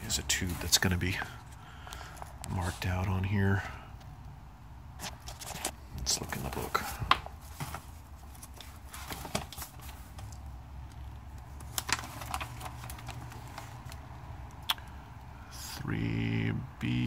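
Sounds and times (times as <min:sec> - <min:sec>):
paper pages rustling: 0:00.0 - 0:02.9, 0:05.0 - 0:10.4, 0:11.4 - 0:14.0
low steady hum: 0:00.0 - 0:17.0.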